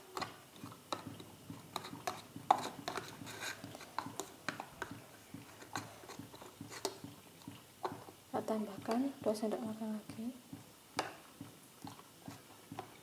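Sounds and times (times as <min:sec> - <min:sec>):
spoon scraping plastic tub: 0:00.0 - 0:09.4.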